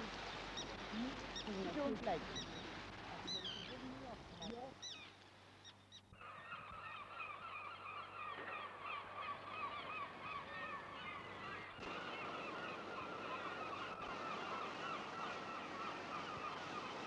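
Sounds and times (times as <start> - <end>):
background hiss: 0.0 - 6.9
gulls calling: 0.0 - 17.0.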